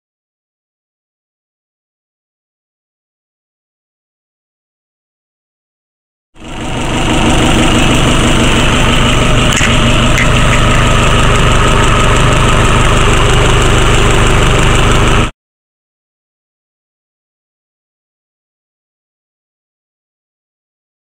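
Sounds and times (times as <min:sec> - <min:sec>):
diesel engine idling: 0:06.4 - 0:15.3.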